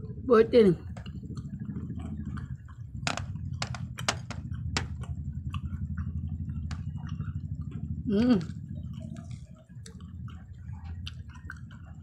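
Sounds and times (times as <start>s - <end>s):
steady low hum: 0.0s - 12.0s
candies being chewed: 8.2s - 12.0s.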